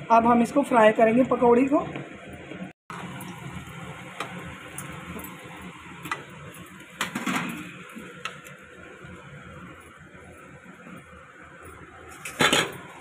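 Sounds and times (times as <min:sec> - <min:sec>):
food sizzling in hot oil: 0:02.9 - 0:13.0.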